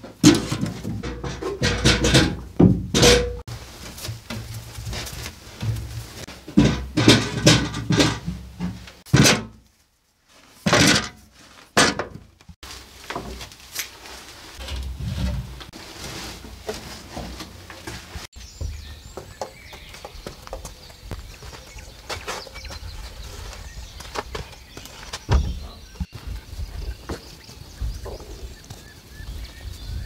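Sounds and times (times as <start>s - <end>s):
potatoes and glass jars clunking: 0.0s - 9.6s, 14.6s - 19.7s.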